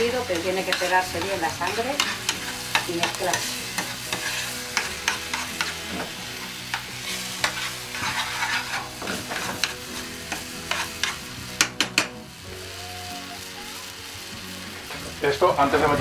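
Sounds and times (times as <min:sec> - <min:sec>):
food sizzling in pan: 0:00.0 - 0:16.0
spoon clacking against pan: 0:00.3 - 0:05.8, 0:06.7 - 0:12.2.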